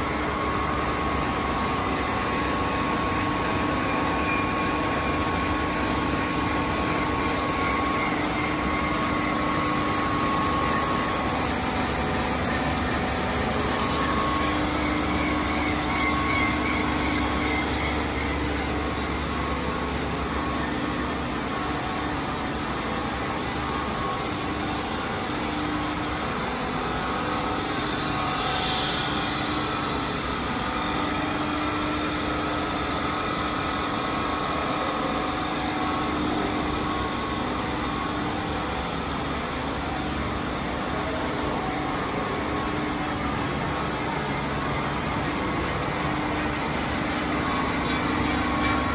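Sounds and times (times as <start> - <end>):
grinding machine drone: 0.0 - 48.9.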